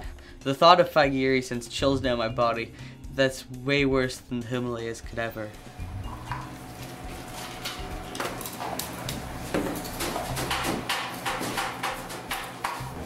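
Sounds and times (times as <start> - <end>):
low steady hum: 5.6 - 10.6
bottles and cans knocking: 7.9 - 13.0.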